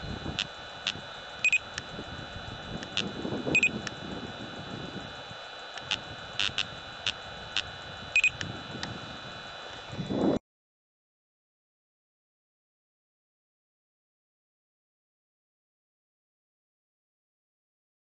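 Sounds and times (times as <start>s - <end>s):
steady high whine: 0.0s - 10.4s
laser speed gun beeping: 0.3s - 1.9s, 2.8s - 3.9s, 5.7s - 8.5s.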